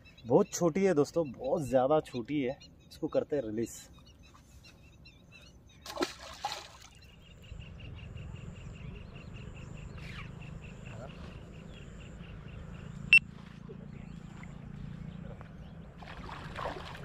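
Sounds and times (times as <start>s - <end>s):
fish splashing into water: 5.8s - 7.0s, 16.0s - 17.0s.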